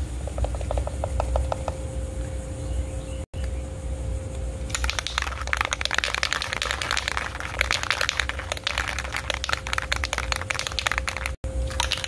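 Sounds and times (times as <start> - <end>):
spray can rattling when shaken: 4.7 - 12.0.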